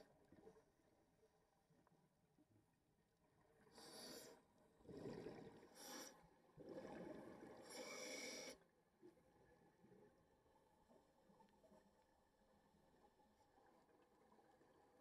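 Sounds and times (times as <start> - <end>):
scuba regulator inhale hiss: 3.8 - 4.4, 5.8 - 6.2, 7.6 - 8.6.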